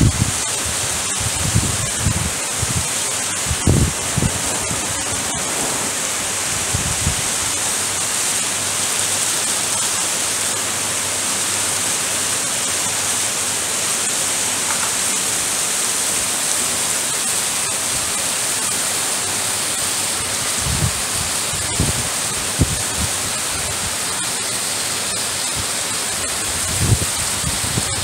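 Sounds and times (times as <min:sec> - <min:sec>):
heavy rain on pavement and cars: 0:00.0 - 0:28.0
low rumbles: 0:03.5 - 0:07.5.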